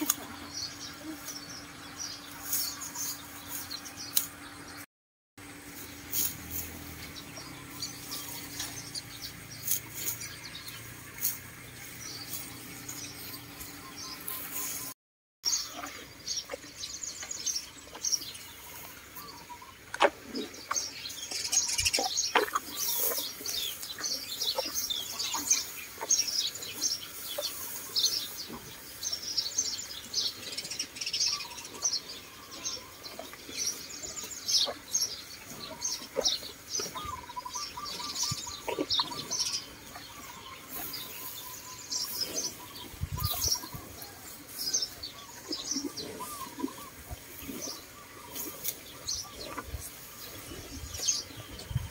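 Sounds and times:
small birds chirping: 0.0s - 51.9s.

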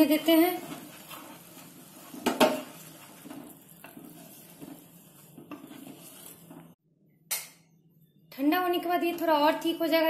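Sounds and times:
hot milk sizzling: 0.0s - 6.8s
wooden spatula scraping a pan: 0.0s - 6.8s.

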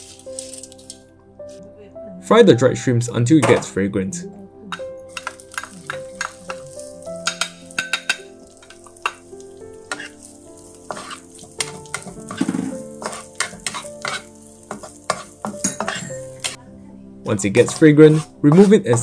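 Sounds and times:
frying oil sizzling: 5.1s - 16.6s
wooden spatula scraping wok: 5.1s - 16.6s, 17.3s - 19.0s.

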